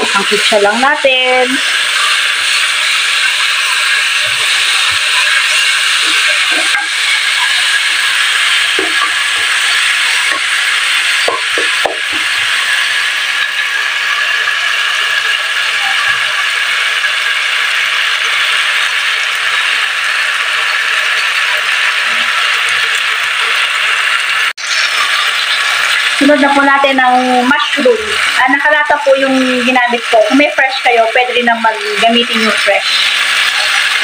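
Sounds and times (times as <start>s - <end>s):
vegetables sizzling in oil: 0.0s - 34.0s
spatula tapping pan: 8.7s - 9.6s, 10.2s - 10.6s, 11.2s - 12.4s.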